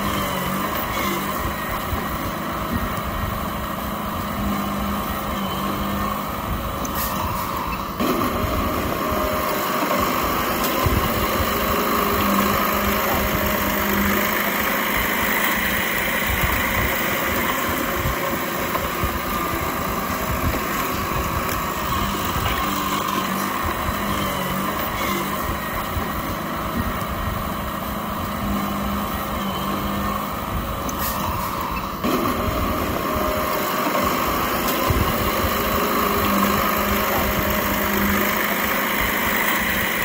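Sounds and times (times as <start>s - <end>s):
bulldozer diesel engine running: 0.0s - 40.0s.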